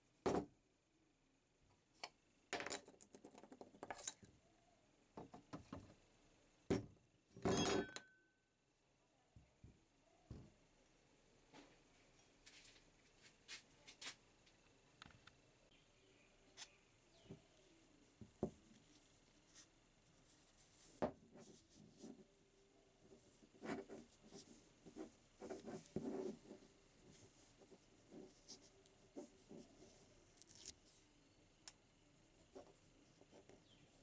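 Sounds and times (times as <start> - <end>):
small ticks: 30.4 - 30.8.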